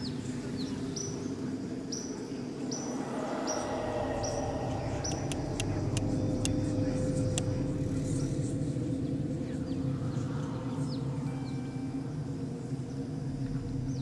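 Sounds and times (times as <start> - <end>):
low steady rumble: 2.4 - 14.0
high wildlife chirps: 2.6 - 8.4
sharp wildlife clicks: 5.0 - 6.6.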